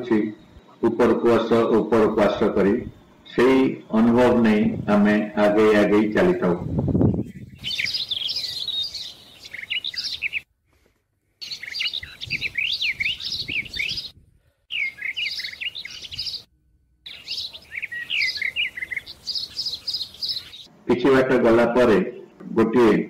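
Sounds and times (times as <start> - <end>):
small birds chirping: 6.1 - 10.5, 11.4 - 20.7.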